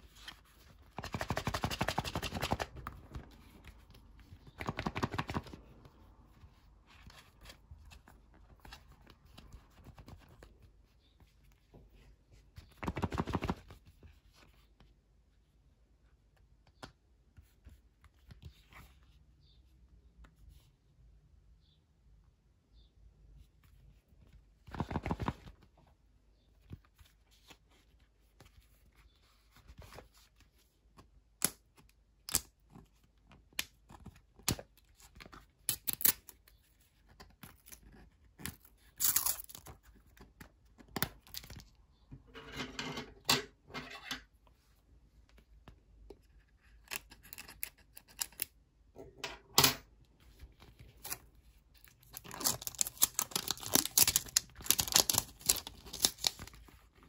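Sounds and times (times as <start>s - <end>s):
plastic packaging crinkling: 52.0s - 56.6s
packaging tearing: 52.2s - 56.6s.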